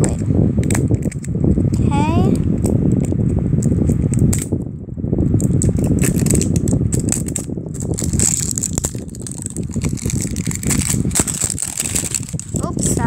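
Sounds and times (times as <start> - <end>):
plastic packaging crinkling: 5.4 - 13.0.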